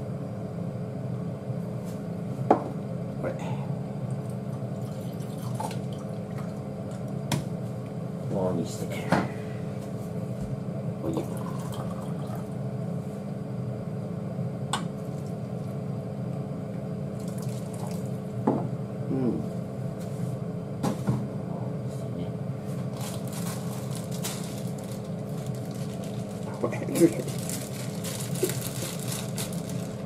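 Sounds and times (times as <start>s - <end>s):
plastic packet rustling: 22.9s - 30.0s.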